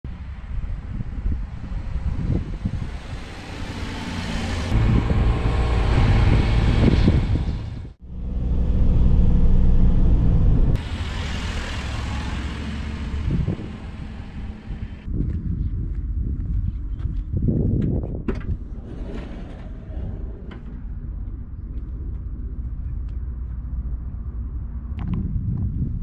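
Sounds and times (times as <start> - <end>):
small truck engine rumbling: 1.6 - 15.1.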